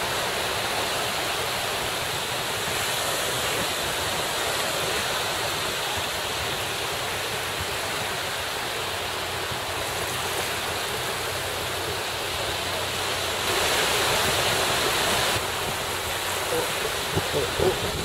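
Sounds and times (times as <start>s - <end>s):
small waves washing in surf: 0.0s - 18.0s
wind buffeting microphone: 14.0s - 18.0s.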